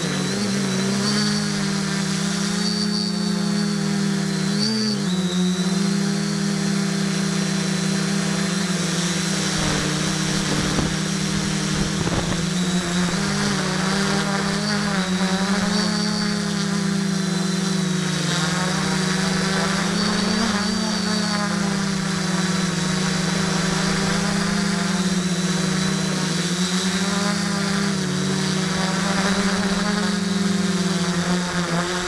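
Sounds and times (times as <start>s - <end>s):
drone motors buzzing: 0.0s - 32.0s
rush of noise: 9.4s - 13.8s.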